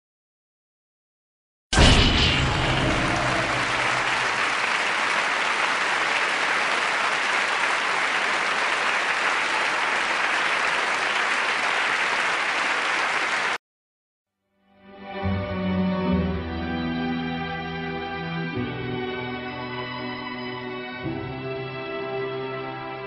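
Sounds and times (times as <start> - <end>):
audience applause: 2.6 - 13.6.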